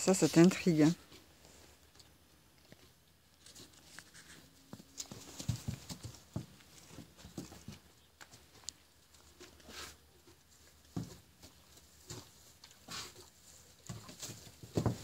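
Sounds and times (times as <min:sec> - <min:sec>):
hooves on wooden floor: 0:04.7 - 0:08.7, 0:10.7 - 0:15.0.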